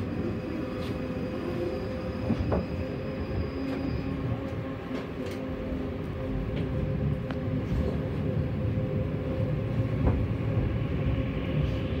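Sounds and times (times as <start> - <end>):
tram humming on rails: 0.0 - 12.0
brief squeal: 1.2 - 4.4.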